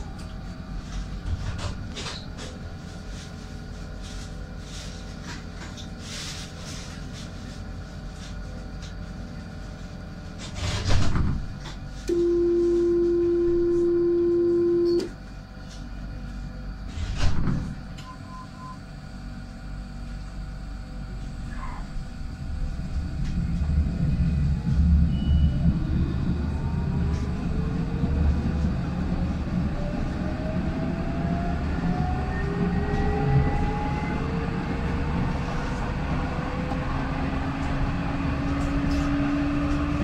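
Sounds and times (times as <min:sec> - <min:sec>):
low hum: 0:11.5 - 0:17.1, 0:18.0 - 0:40.0
short faint beeps: 0:12.1 - 0:15.1
steady equipment tones: 0:12.1 - 0:15.1.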